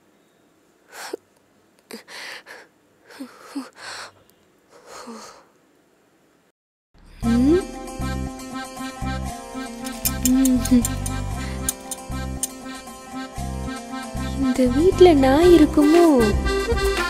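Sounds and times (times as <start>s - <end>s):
boy sobbing: 1.9s - 4.1s.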